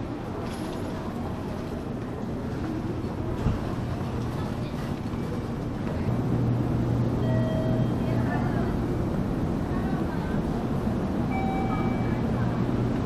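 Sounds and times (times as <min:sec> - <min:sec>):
low train hum: 0:00.0 - 0:13.0
people climbing stairs: 0:00.4 - 0:06.4.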